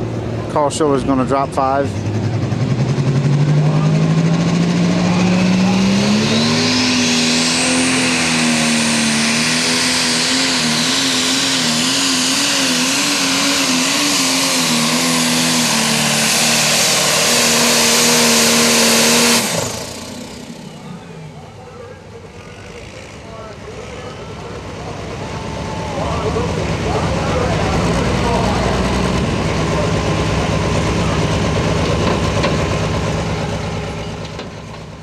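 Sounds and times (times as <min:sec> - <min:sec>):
diesel engine at full throttle: 0:00.0 - 0:35.0.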